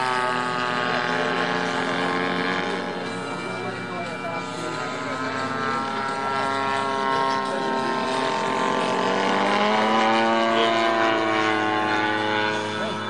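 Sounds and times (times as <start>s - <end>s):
model plane engine and propeller: 0.0s - 13.0s.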